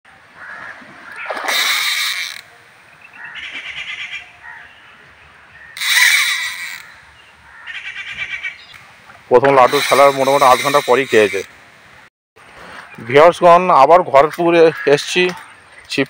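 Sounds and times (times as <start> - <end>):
fishing reel buzzing and clicking: 1.5 - 2.5, 5.8 - 7.0, 9.6 - 11.5.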